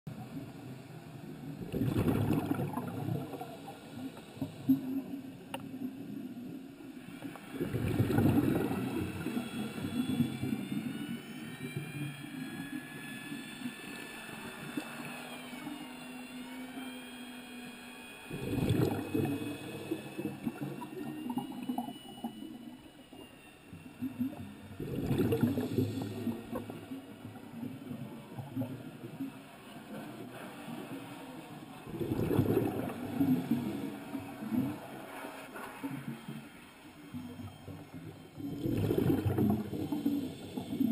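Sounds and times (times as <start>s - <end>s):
high gliding whine: 0.1s - 40.9s
muffled underwater noise: 18.3s - 40.9s.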